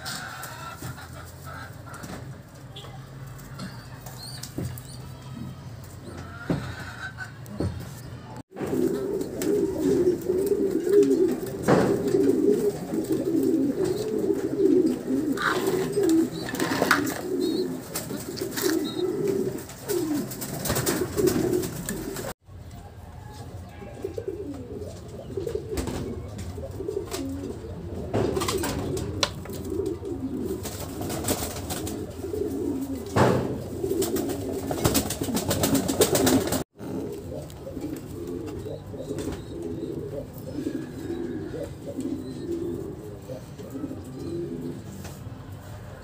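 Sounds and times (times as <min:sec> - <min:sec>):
pigeons cooing: 0:08.5 - 0:22.4, 0:23.6 - 0:45.7
rustling: 0:08.6 - 0:22.4.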